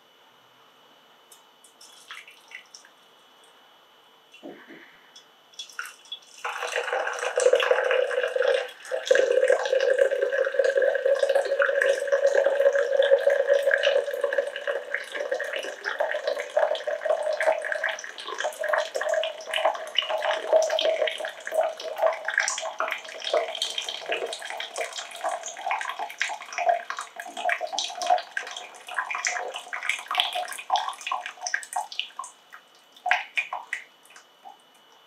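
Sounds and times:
water pouring into glass jug: 5.6s - 32.3s.

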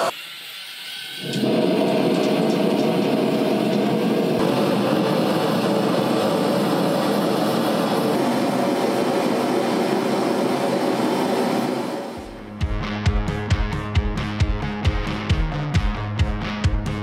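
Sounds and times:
faint hiss: 0.0s - 1.3s
gas burner rushing: 0.0s - 12.4s.

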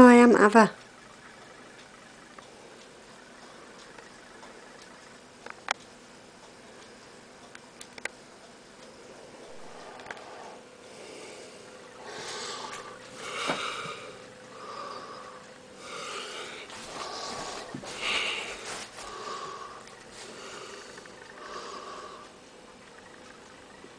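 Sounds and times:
faint steady hum: 0.0s - 23.9s
person sniffing breaths: 9.4s - 22.4s.

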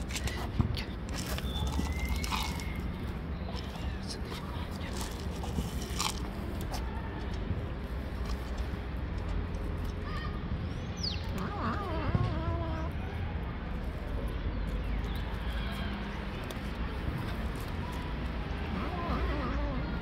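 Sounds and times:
cats crunching dry kibble: 0.0s - 10.0s, 13.7s - 19.5s.

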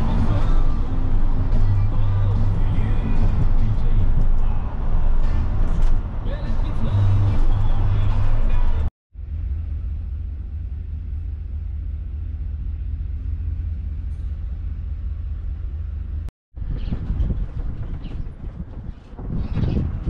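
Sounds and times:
cab road noise: 0.0s - 20.0s
truck engine rumble: 0.0s - 20.0s.

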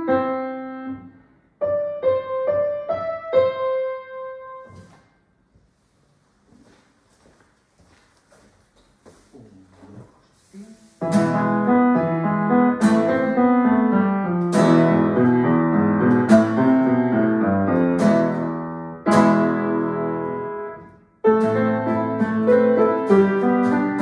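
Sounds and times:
grand piano playing: 0.0s - 4.8s, 11.0s - 24.0s.

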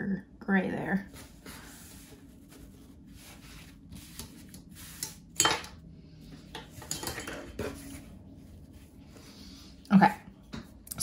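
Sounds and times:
soft rustling: 1.0s - 5.0s.

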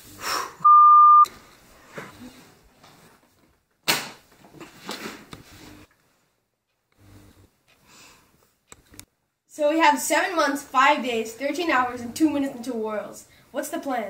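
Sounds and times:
loud electronic beep: 0.6s - 1.2s.

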